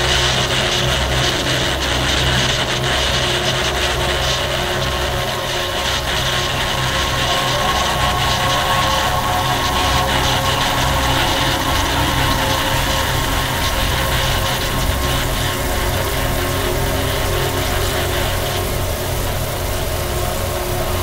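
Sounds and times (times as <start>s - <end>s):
industrial noise drone: 0.0s - 21.0s
low pulsing throb: 0.0s - 21.0s.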